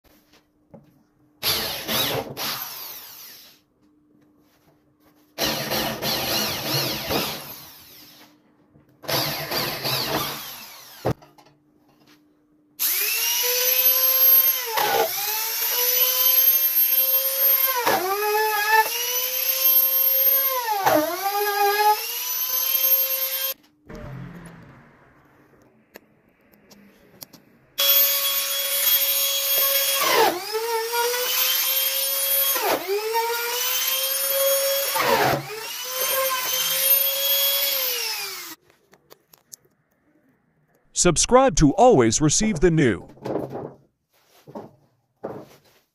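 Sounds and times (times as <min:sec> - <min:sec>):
electric drill boring into wood: 0:01.4 - 0:03.6, 0:05.4 - 0:08.3, 0:09.0 - 0:11.2, 0:12.8 - 0:23.6, 0:27.8 - 0:38.6.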